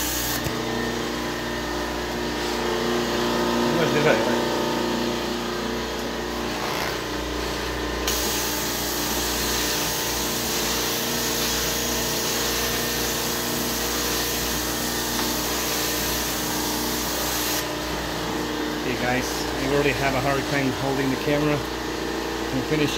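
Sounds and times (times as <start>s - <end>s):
cleaning machine motor hum: 0.0s - 22.9s.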